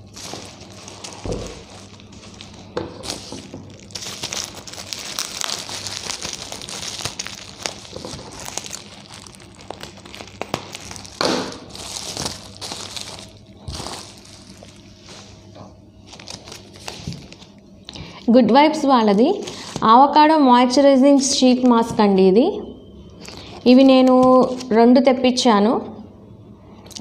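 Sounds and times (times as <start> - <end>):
bubble wrap crinkling: 0.0 - 17.6, 19.2 - 20.0, 23.2 - 24.7
sharp crackles: 3.9 - 14.7.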